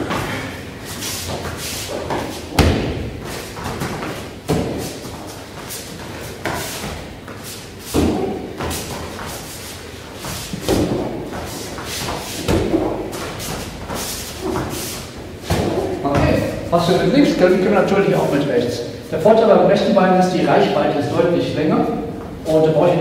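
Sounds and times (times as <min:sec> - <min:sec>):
footsteps on foam mats: 0:00.0 - 0:16.6
kicks thudding on kick pad: 0:02.1 - 0:05.0, 0:07.9 - 0:09.0, 0:10.5 - 0:13.2, 0:15.4 - 0:16.5.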